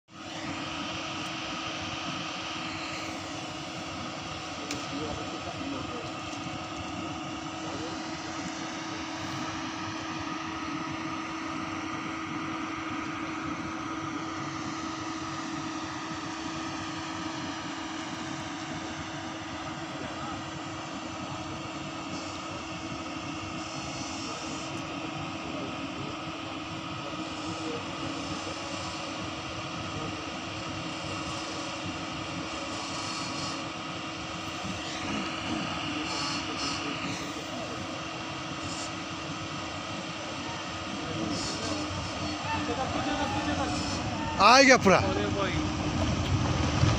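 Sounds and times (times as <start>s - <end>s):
engine running steadily: 0.1s - 46.9s
rising whine: 40.2s - 46.9s.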